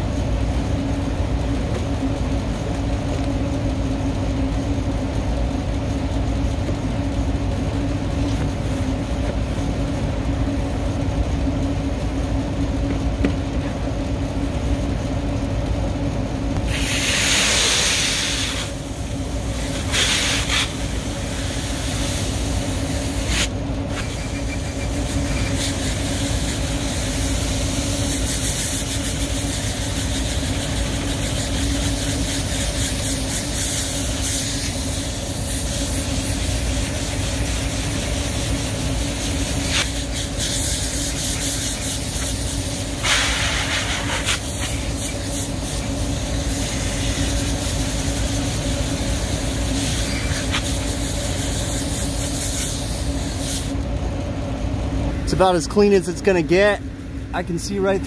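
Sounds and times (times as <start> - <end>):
machine hum: 0.0 - 58.0
hose spray hissing on metal coil: 16.6 - 53.8.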